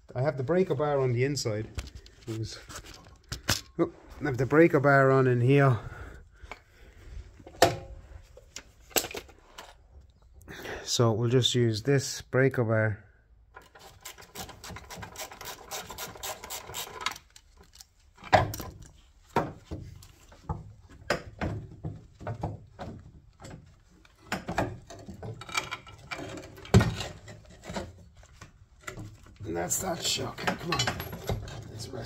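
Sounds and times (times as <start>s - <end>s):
metal knocks and clunks: 18.2s - 28.0s, 30.1s - 32.0s.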